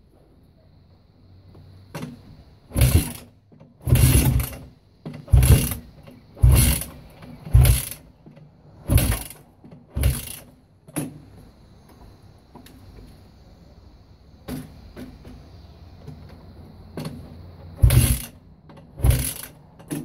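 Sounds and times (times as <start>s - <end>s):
motorcycle kickstart turning over: 1.9s - 11.2s, 17.0s - 20.0s.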